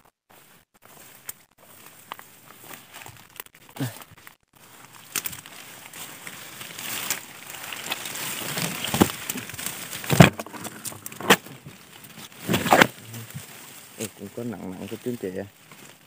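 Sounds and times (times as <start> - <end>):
leafy undergrowth rustling: 0.0 - 16.0.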